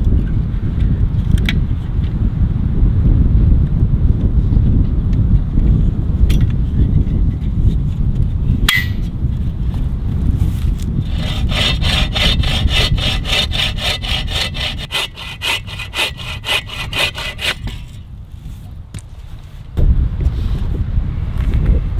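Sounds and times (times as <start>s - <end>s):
wind rumble on microphone: 0.0s - 21.9s
handsaw cutting log: 11.0s - 18.0s.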